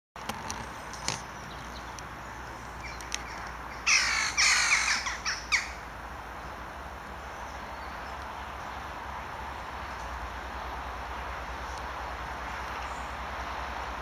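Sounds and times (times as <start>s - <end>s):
crow cawing: 3.9s - 5.8s.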